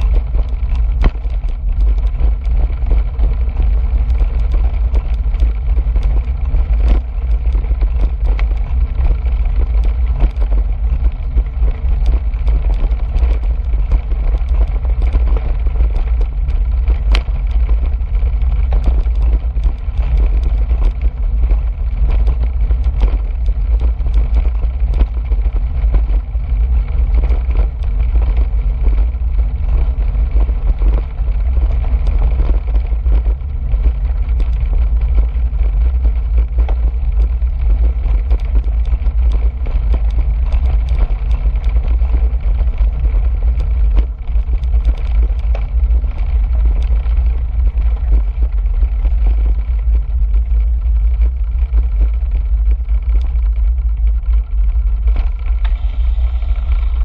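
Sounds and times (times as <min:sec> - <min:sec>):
bike rattling: 0:00.0 - 0:57.0
wind buffeting microphone: 0:00.0 - 0:57.0.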